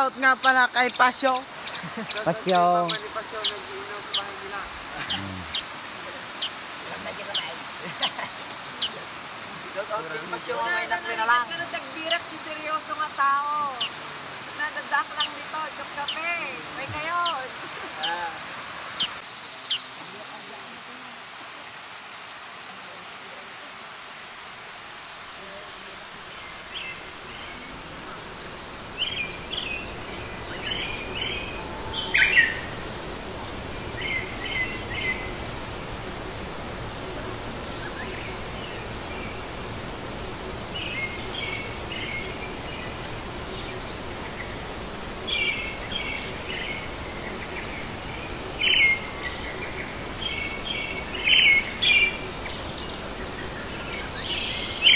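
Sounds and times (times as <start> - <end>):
birds chirping: 0.0 - 54.9
water rushing over weir: 0.0 - 54.9.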